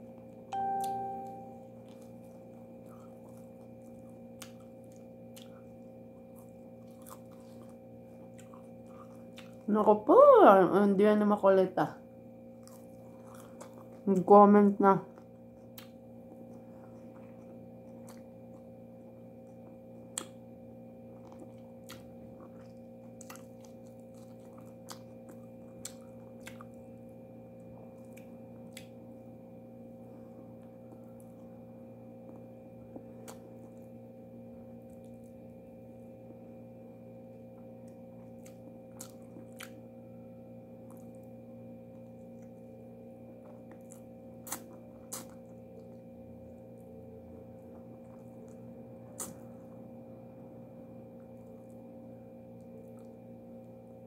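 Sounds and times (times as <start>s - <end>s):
steady low hum: 0.0s - 54.0s
person chewing food: 0.9s - 9.7s, 12.5s - 14.1s, 15.1s - 29.2s, 32.2s - 36.1s, 37.3s - 40.0s, 40.7s - 50.1s, 51.0s - 52.0s, 52.6s - 53.4s
wet mouth clicks and smacks: 20.1s - 20.4s, 37.8s - 39.8s, 43.7s - 46.0s, 48.0s - 49.4s.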